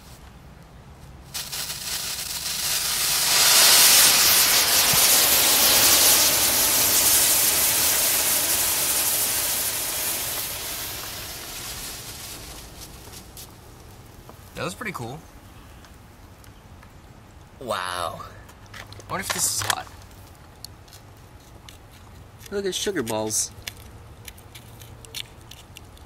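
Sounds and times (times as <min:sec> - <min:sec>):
rocket fuel burning loud hiss: 0:01.3 - 0:13.6.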